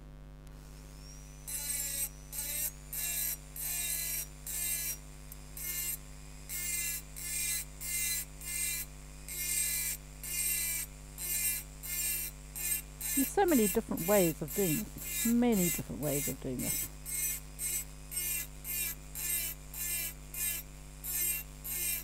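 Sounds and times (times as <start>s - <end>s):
steady low hum: 11.2s - 17.2s.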